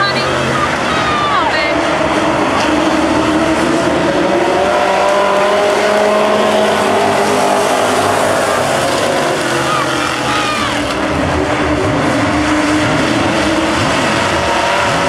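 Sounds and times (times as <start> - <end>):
race car engines passing: 0.0 - 15.0.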